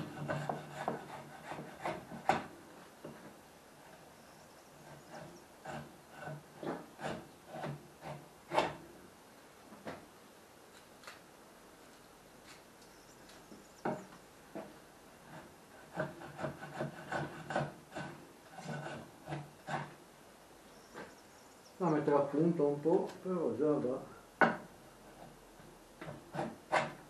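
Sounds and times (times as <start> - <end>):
hand plane shaving wood: 0.0 - 2.5, 4.8 - 8.8, 15.2 - 20.0, 26.0 - 27.0.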